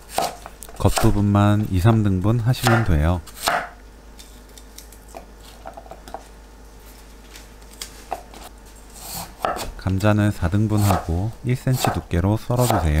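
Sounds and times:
knife cutting onion on board: 0:00.0 - 0:01.2, 0:02.6 - 0:03.8, 0:08.1 - 0:09.8, 0:10.7 - 0:13.0.

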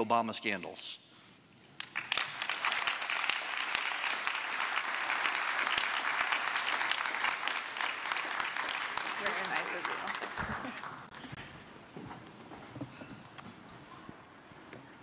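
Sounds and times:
audience applauding: 0:01.8 - 0:11.5.

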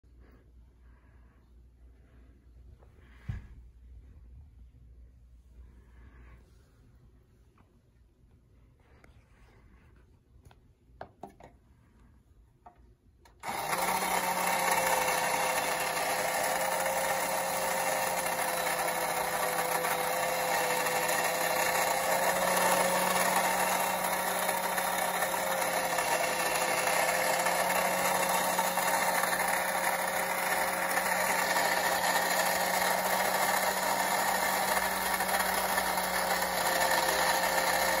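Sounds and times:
toy motor and gears humming: 0:13.2 - 0:38.0.

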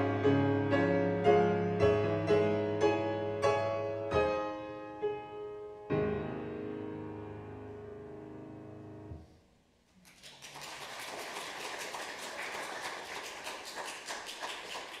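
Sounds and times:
piano chord: 0:00.0 - 0:09.4
congregation applauding: 0:10.0 - 0:15.0.

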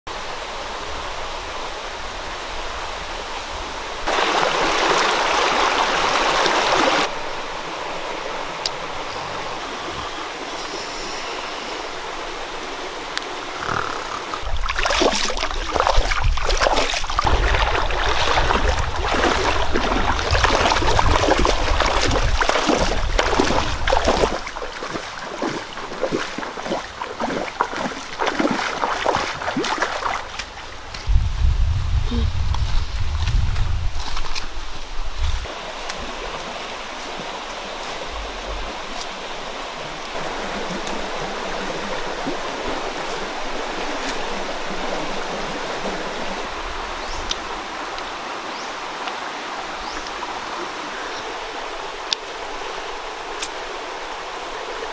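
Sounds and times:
river water rushing: 0:00.1 - 0:31.0, 0:34.3 - 0:54.9
water splashing strokes: 0:09.2 - 0:30.9
low rumble: 0:31.1 - 0:34.1.

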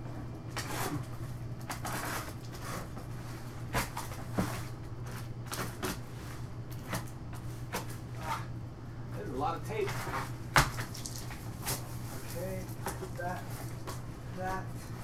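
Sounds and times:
steady low hum: 0:00.0 - 0:15.0
tape pulling off cardboard: 0:00.5 - 0:03.0, 0:09.9 - 0:13.1
cardboard flaps tearing and scraping: 0:01.7 - 0:03.0.

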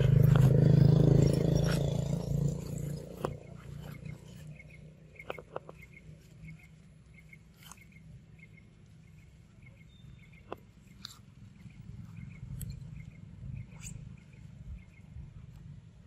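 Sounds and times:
sharp clicks and ticks: 0:00.0 - 0:08.0, 0:10.3 - 0:14.0
low steady rumble: 0:00.0 - 0:16.0
faint high chirp: 0:03.8 - 0:15.2.

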